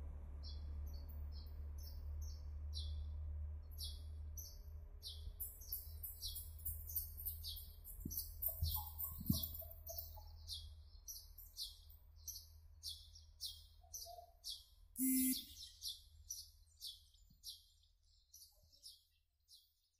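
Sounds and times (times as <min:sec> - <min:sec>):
short loud tone: 0:15.0 - 0:15.5
high chirping pulses: 0:15.0 - 0:15.8.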